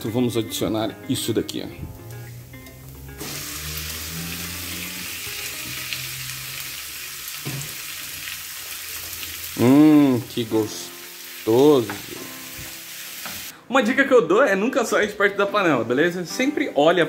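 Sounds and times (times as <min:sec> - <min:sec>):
chicken sizzling in frying pan: 0:02.0 - 0:13.5.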